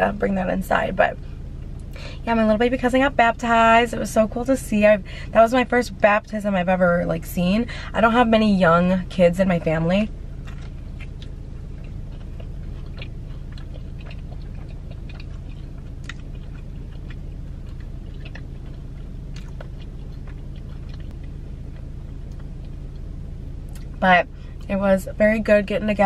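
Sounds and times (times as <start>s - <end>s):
steady low hum: 0.0s - 26.0s
person chewing food: 10.3s - 24.0s
mouth clicks and smacks: 10.5s - 22.8s.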